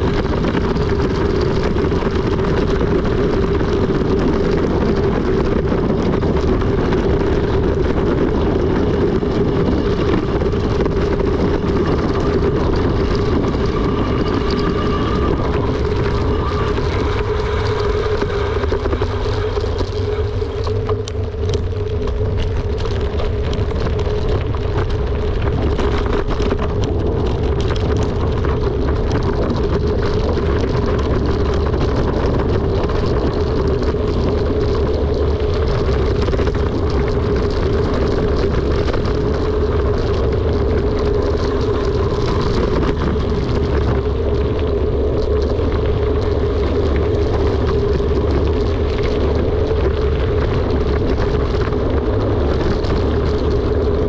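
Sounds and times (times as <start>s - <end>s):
bike tyres rolling: 0.0s - 54.0s
wind on microphone: 0.0s - 54.0s
bike clicks: 15.8s - 54.0s.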